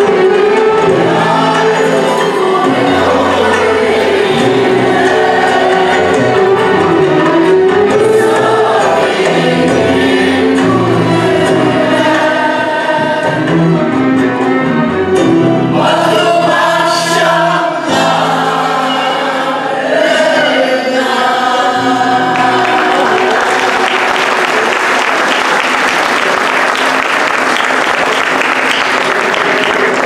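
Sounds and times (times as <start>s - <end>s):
mixed choir singing: 0.0s - 26.3s
strings and lutes ensemble: 0.0s - 27.1s
audience applause: 22.2s - 30.0s.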